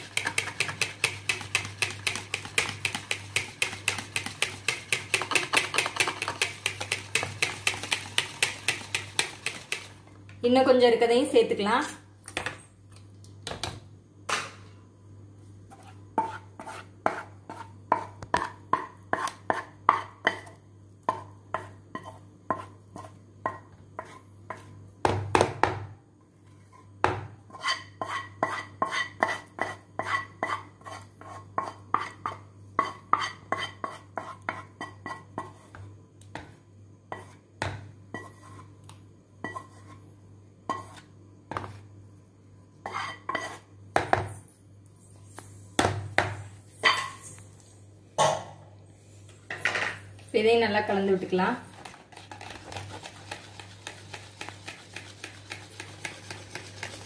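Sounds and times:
whisk tapping plastic bowl: 0:00.0 - 0:10.0, 0:51.8 - 0:57.0.

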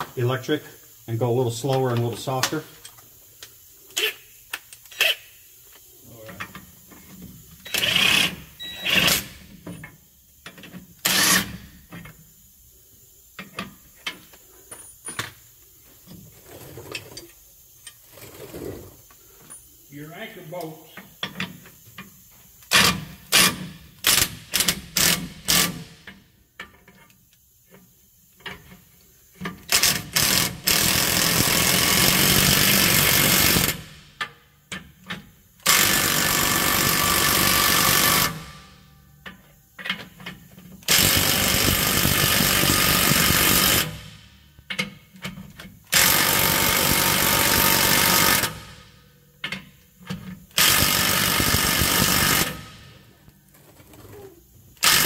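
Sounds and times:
impact wrench hammering: 0:40.8 - 0:44.9, 0:45.9 - 0:53.0.

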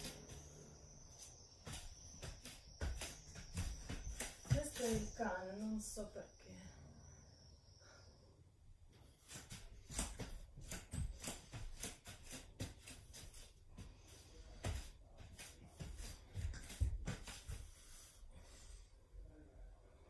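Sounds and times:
rustling and thumps on foam mat: 0:01.6 - 0:05.3, 0:09.2 - 0:18.1.

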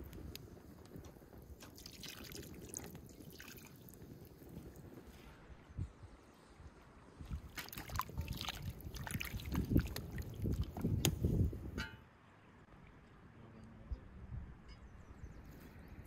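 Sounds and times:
water sloshing and splashing: 0:01.6 - 0:04.8, 0:07.2 - 0:11.2.

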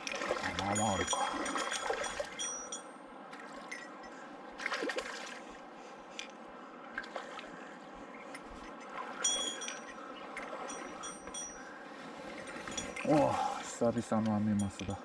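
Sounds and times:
water splash: 0:00.0 - 0:02.4, 0:04.6 - 0:05.5
river water running: 0:00.0 - 0:15.0
high ringing clicks: 0:09.2 - 0:11.6.

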